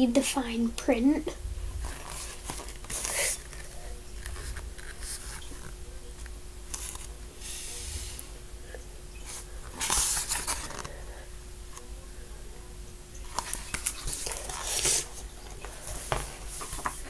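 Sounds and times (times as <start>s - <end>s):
microphone handling rumble: 1.4s - 5.9s
paper rustling: 1.8s - 7.2s, 9.3s - 11.0s, 13.4s - 17.0s.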